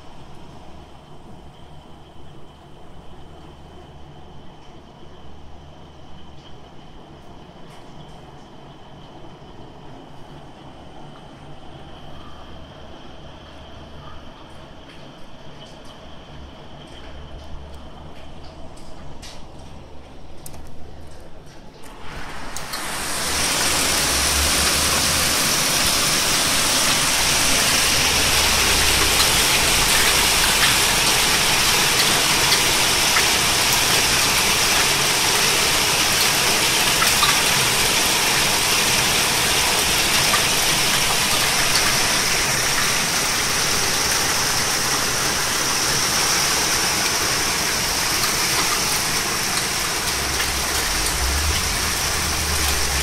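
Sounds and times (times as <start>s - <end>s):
torrential rain and hail: 15.7s - 53.0s.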